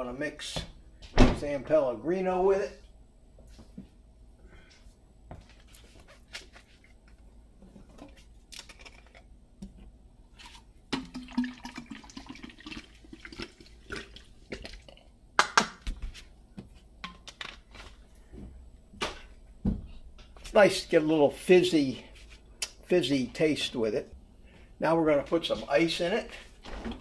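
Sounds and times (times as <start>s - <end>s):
sparkling water pouring into bottle: 11.0s - 14.3s.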